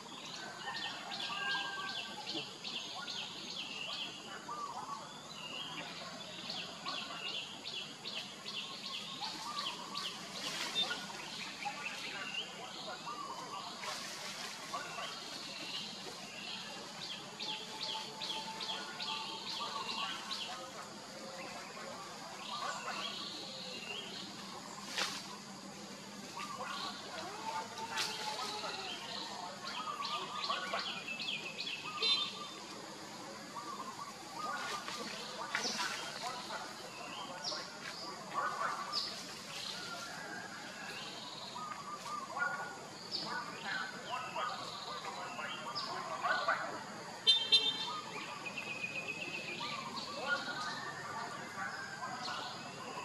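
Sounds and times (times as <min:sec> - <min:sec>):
outdoor background hiss: 0:00.0 - 0:53.0.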